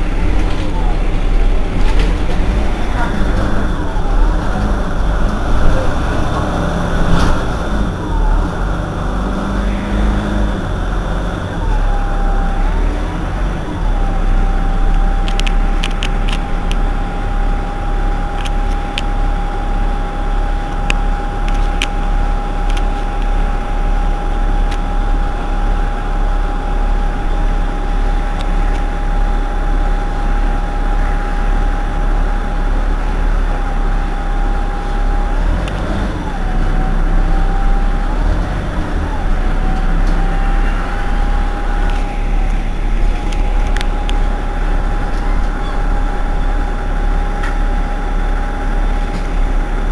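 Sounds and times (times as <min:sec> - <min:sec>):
bus engine idling: 0:00.0 - 0:49.9.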